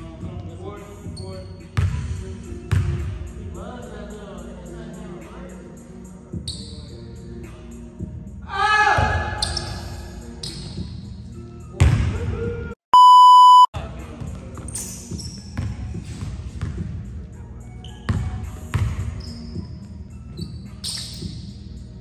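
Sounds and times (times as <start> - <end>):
loud high bleep: 12.9 - 13.7.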